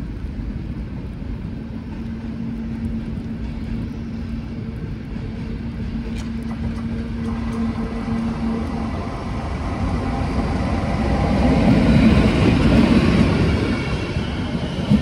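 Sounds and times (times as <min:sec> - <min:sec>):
steady train hum: 0:00.0 - 0:15.0
train rumble: 0:00.0 - 0:15.0.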